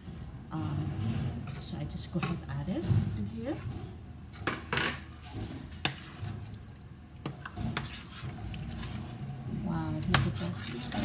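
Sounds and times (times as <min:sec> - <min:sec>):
spoon stirring thick porridge: 0:05.2 - 0:09.2, 0:10.0 - 0:11.0.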